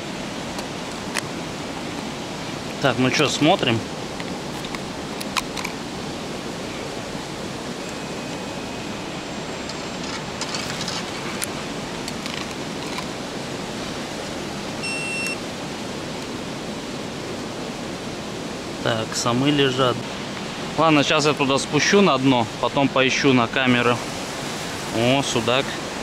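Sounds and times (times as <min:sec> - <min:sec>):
steady rushing noise: 0:00.0 - 0:14.8, 0:15.4 - 0:26.0
short electronic beep: 0:14.8 - 0:15.4.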